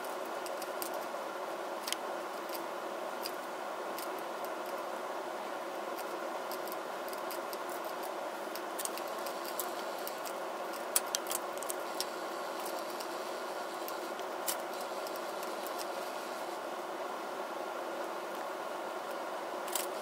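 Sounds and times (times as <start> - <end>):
room hum and hiss: 0.0 - 20.0.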